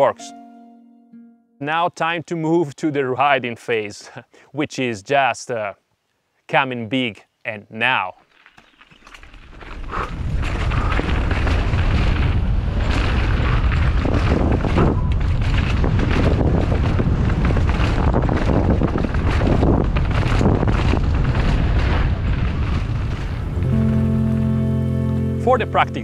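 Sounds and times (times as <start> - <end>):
bike tyres crackling over stones: 8.3 - 24.3
wind rumble on microphone: 9.5 - 23.6.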